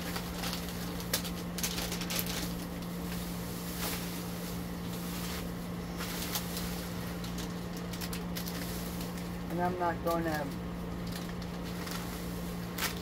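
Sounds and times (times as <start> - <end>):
plastic package crinkling: 0.0 - 13.0.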